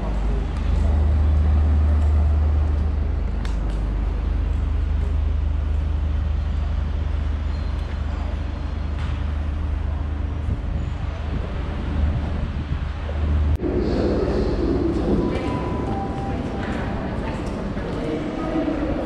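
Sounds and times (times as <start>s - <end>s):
low rumble of traffic: 0.0s - 19.0s.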